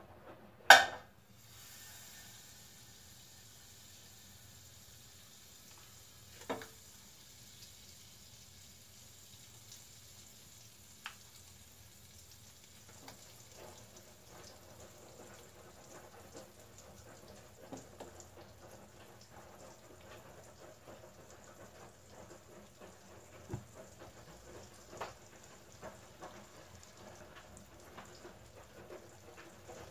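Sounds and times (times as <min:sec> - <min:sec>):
sharp knock: 0:00.7 - 0:01.0
butter sizzling in a pot: 0:00.7 - 0:29.9.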